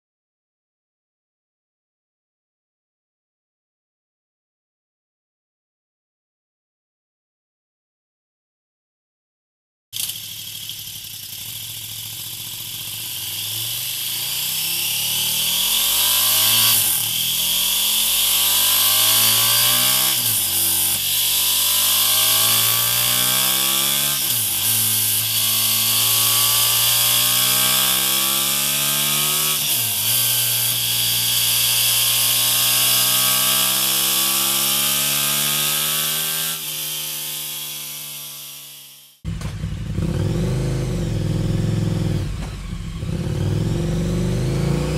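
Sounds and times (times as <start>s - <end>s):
motorcycle engine accelerating: 10.0s - 44.9s.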